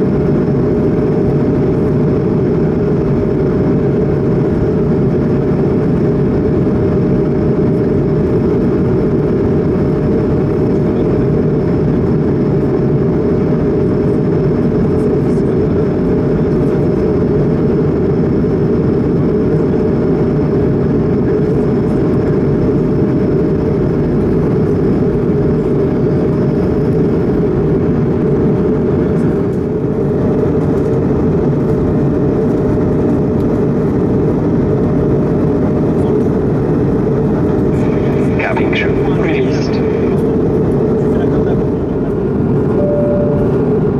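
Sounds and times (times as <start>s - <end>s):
airplane cabin roar: 0.0s - 43.9s
steady hum: 36.9s - 41.2s, 42.1s - 43.9s.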